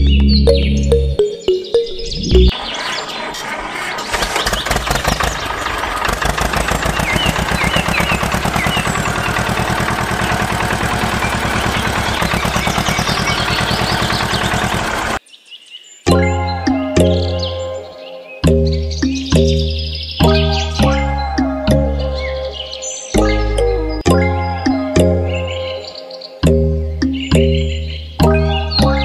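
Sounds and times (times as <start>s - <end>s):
birds chirping: 0.0s - 29.0s
tractor engine chugging: 2.5s - 15.2s.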